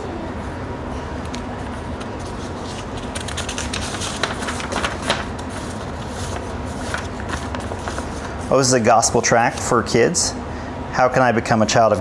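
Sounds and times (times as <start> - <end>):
glossy paper rustling: 1.3 - 9.8.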